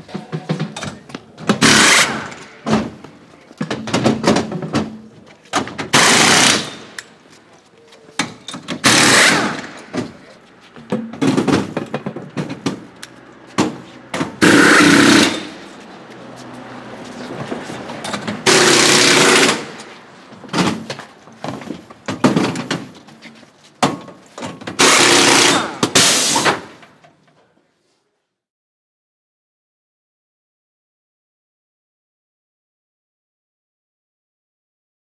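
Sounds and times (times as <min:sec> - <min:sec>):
pneumatic wheel guns rattling: 0:00.7 - 0:03.0, 0:03.7 - 0:07.2, 0:08.2 - 0:10.2, 0:11.1 - 0:15.7, 0:17.9 - 0:23.1, 0:24.0 - 0:27.0.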